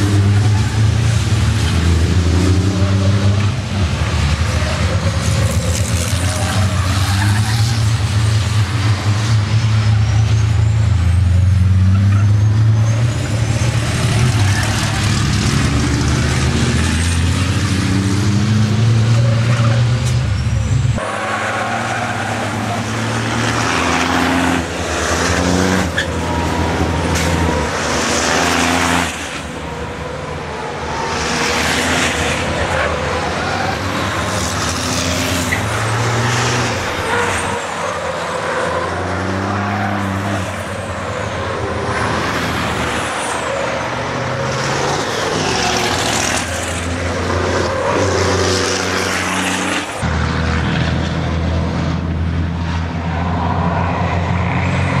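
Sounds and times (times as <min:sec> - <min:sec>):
racing truck engines passing: 0:00.0 - 0:55.0.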